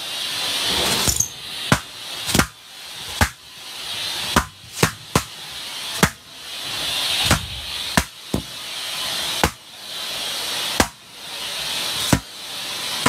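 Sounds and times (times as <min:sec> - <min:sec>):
vacuum suction hiss: 0:00.0 - 0:13.0
balloons popping: 0:03.2 - 0:03.4, 0:04.3 - 0:05.4, 0:07.2 - 0:08.5, 0:10.8 - 0:11.0.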